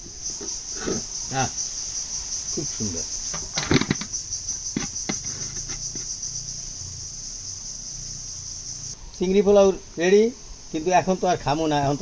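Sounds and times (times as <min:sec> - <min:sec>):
insect chirring: 0:00.0 - 0:12.0
metal pot scraping a platter: 0:03.3 - 0:06.1.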